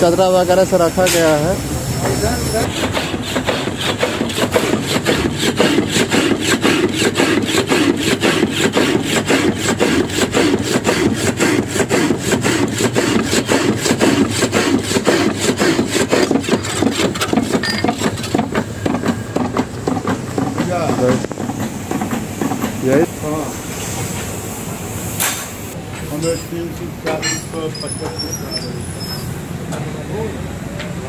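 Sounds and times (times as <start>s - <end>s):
power hacksaw cutting steel: 1.0s - 23.1s, 26.2s - 28.8s.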